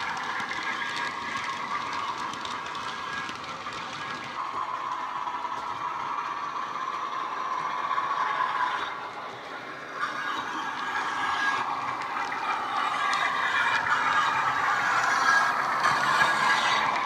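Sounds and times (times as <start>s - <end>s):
model wagon wheels clicking: 0.0s - 17.0s.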